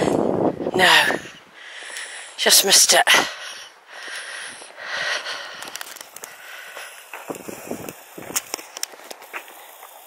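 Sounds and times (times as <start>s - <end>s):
wind noise on microphone: 0.0s - 1.6s, 7.1s - 8.9s
breathing close to microphone: 1.2s - 2.4s, 3.1s - 7.9s
footsteps on a path: 4.0s - 10.0s.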